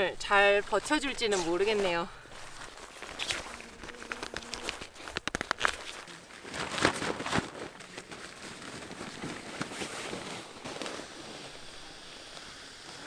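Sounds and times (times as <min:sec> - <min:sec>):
air mattress fabric rustling: 0:04.6 - 0:13.0.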